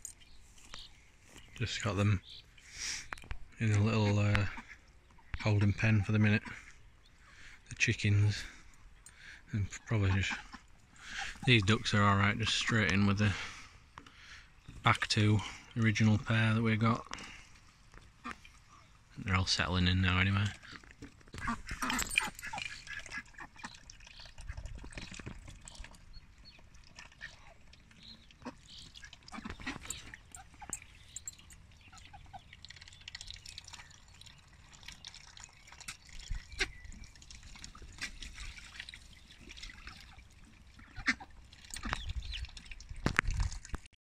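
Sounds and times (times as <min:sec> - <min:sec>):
ducks quacking quietly: 0:00.6 - 0:19.4, 0:20.2 - 0:34.0, 0:34.6 - 0:43.3
ducks splashing in water: 0:08.3 - 0:15.8, 0:17.0 - 0:19.2, 0:20.5 - 0:43.9.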